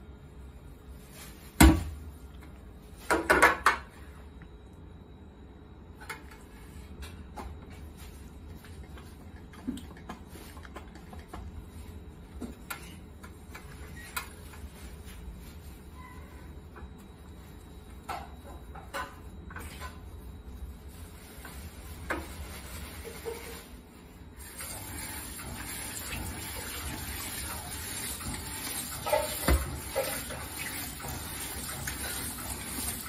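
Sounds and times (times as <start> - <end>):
plates clinking in a steel sink: 28.3 - 32.4
dishes clattering: 28.9 - 32.4.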